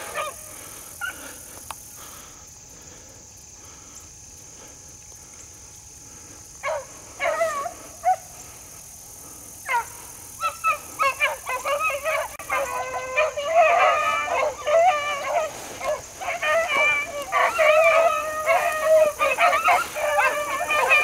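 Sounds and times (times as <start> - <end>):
hounds baying: 0.0 - 1.6, 6.2 - 21.0.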